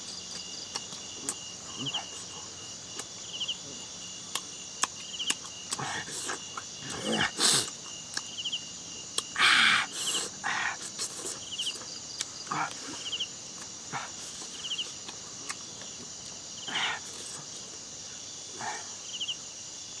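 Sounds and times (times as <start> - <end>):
person chewing and smacking: 0.0 - 2.3, 2.9 - 3.2, 4.2 - 6.7, 7.6 - 8.4, 9.1 - 9.4, 10.8 - 12.9, 13.5 - 16.4
cricket chorus: 0.0 - 20.0
trilled insect chirp: 0.0 - 20.0.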